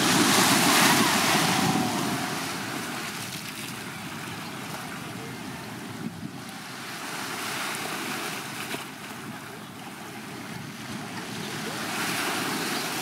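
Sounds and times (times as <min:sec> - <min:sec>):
waves washing onto beach: 0:00.0 - 0:13.0.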